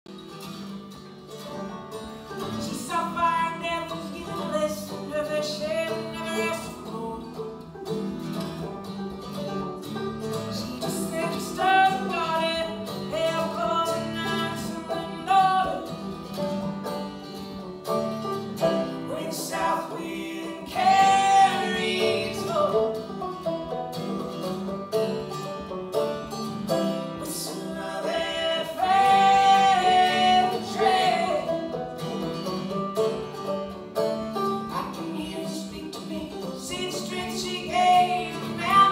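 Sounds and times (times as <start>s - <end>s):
acoustic guitar: 0.1s - 38.9s
banjo: 0.1s - 38.9s
person singing: 2.4s - 7.5s, 10.5s - 16.0s, 18.9s - 23.0s, 27.2s - 31.8s, 34.7s - 38.9s.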